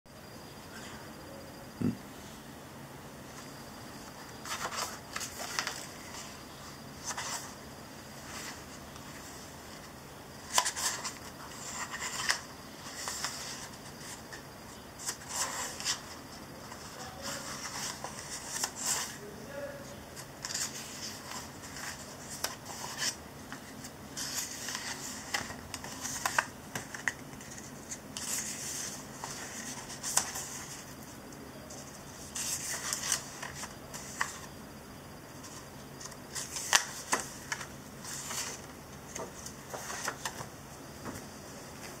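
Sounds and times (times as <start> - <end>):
paper pages rustling: 4.0 - 19.2, 20.1 - 34.5, 35.3 - 40.5
pages snapping as they flip: 4.4 - 5.9, 10.4 - 13.7, 36.0 - 40.5.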